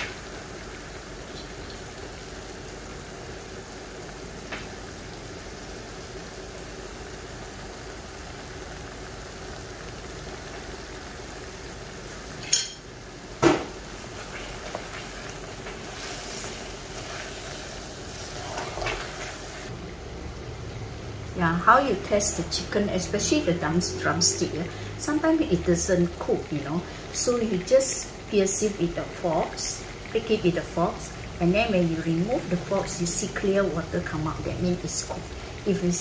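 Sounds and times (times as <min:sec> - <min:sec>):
chicken sizzling in a wok: 0:00.0 - 0:36.0
metal spoon clinking on wok: 0:12.4 - 0:12.8
wooden spatula scraping: 0:14.0 - 0:19.7.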